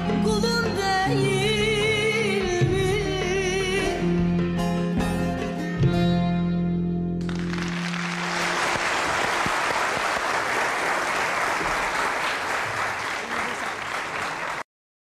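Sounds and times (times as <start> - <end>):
audience applauding: 7.2 - 14.7.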